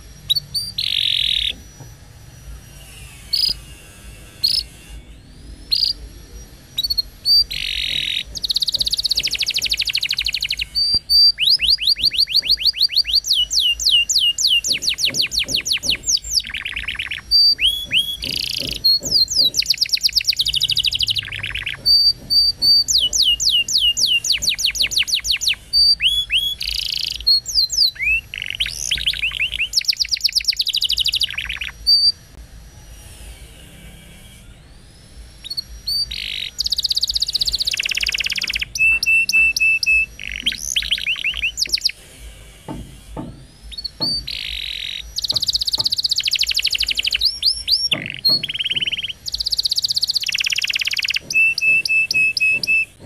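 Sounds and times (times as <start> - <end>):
canary singing trills: 0.0 - 32.4, 33.5 - 53.0.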